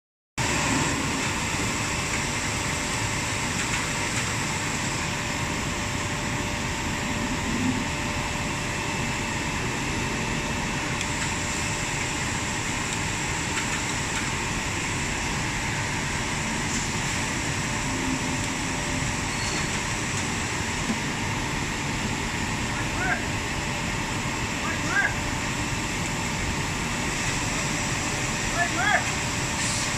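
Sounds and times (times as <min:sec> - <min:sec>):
machine hum and hiss: 0:00.4 - 0:29.9.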